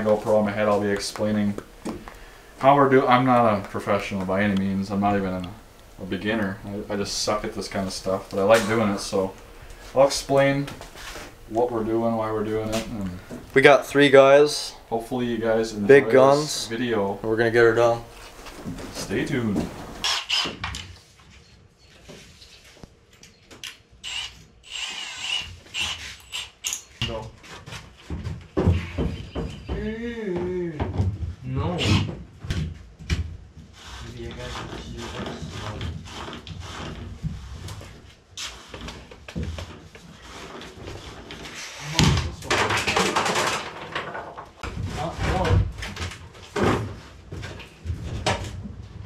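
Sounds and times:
scraping and rubbing wood: 0.0s - 21.1s, 31.8s - 49.0s.

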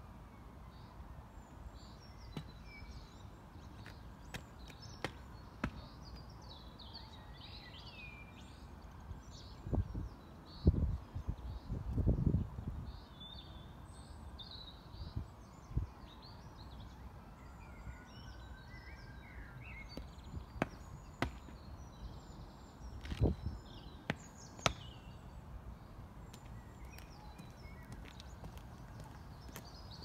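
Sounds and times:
birds chirping: 17.6s - 30.0s
boots striking tarmac: 19.9s - 21.7s, 23.0s - 23.4s, 26.3s - 30.0s.

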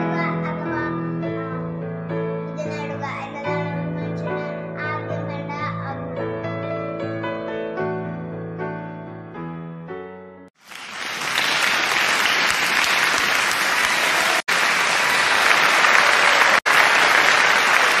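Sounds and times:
music: 0.0s - 10.5s
loud steady applause: 10.6s - 18.0s.

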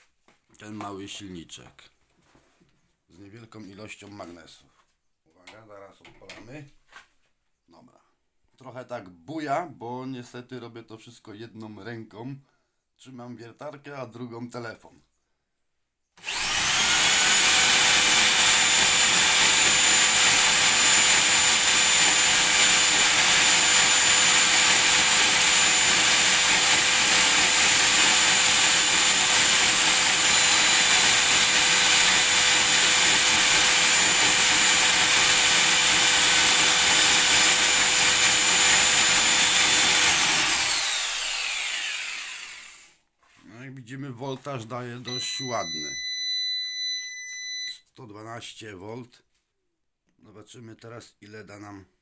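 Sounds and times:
electric drill whine: 16.2s - 43.0s.

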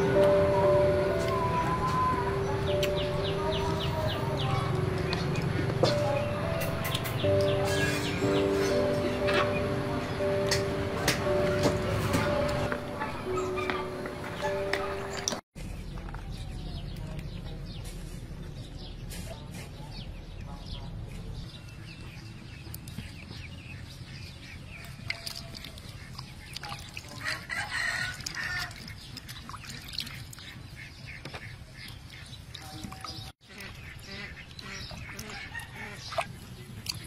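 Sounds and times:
chickens clucking: 0.0s - 15.4s
water splashing and dripping: 24.1s - 37.0s
rooster crowing: 27.2s - 28.7s.

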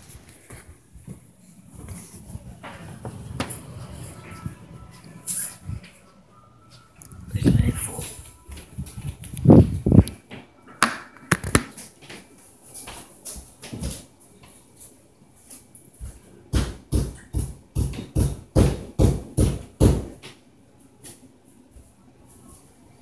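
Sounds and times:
footsteps thumping through ceiling: 0.0s - 5.0s.

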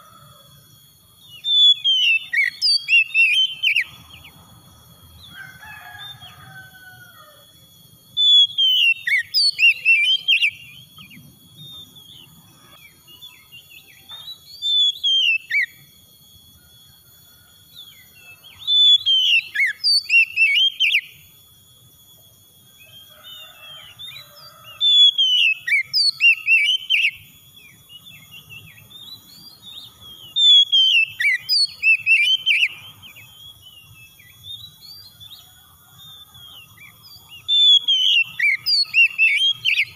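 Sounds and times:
bird singing whistled phrases: 1.2s - 4.3s, 8.0s - 15.9s, 17.8s - 21.3s, 21.9s - 35.5s, 36.5s - 39.9s.

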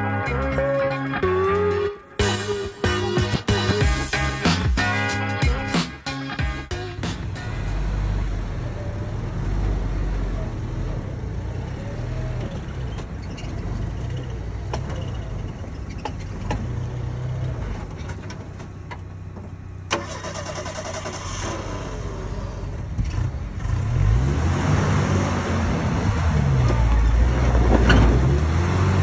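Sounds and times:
car engine running at low revs: 6.9s - 29.0s.

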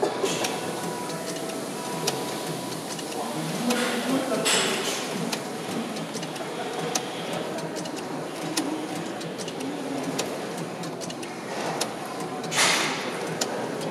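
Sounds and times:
small mechanical clicks: 4.4s - 13.9s.

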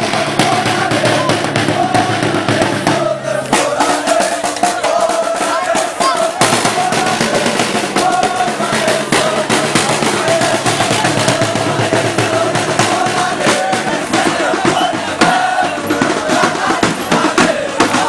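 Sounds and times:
crowd chanting: 0.0s - 18.0s
hand drums beating fast: 0.0s - 18.0s.

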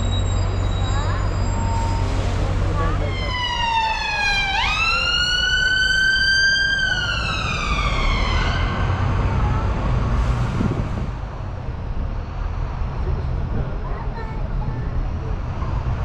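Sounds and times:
low rumble of bus and traffic: 0.0s - 16.0s
ambulance siren wailing: 1.4s - 9.8s.

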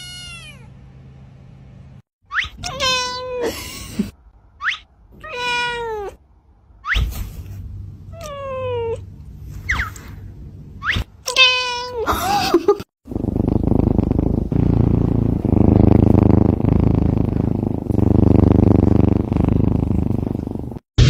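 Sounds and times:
cat meowing: 0.0s - 0.7s, 2.5s - 3.5s, 5.2s - 6.2s
kitten purring: 13.1s - 20.8s.

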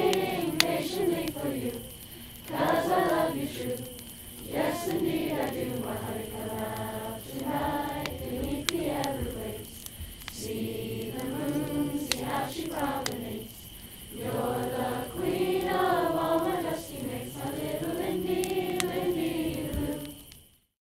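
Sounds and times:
faint sharp clicks: 0.0s - 14.0s, 18.2s - 20.6s
group of voices singing: 0.0s - 20.4s.

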